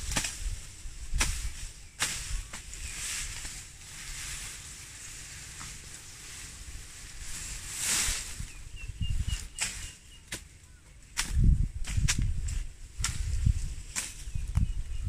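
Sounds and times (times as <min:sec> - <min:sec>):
leaves swishing: 0:00.0 - 0:10.5
grass stalks rustling: 0:00.0 - 0:14.9.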